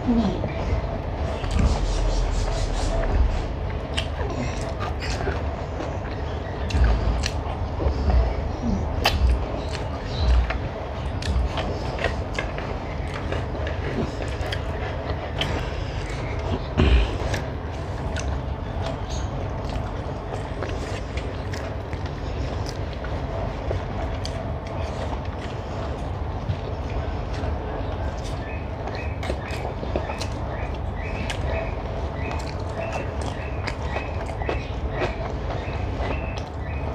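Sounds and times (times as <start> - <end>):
low rumble: 0.0 - 24.1
chewing: 1.4 - 36.9.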